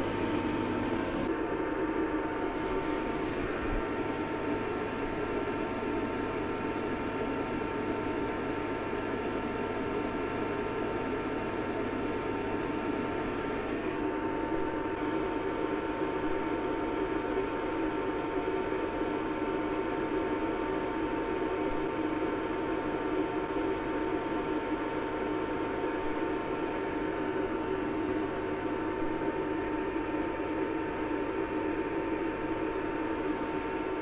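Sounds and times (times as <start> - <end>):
cooling fan rushing: 0.0 - 18.5.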